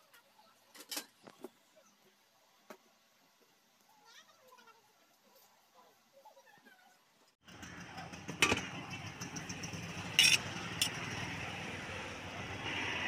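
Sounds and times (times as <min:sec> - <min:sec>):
background hum with traffic: 0:07.5 - 0:13.0
metal utensils clinking on a pot: 0:08.4 - 0:08.7, 0:10.2 - 0:11.0.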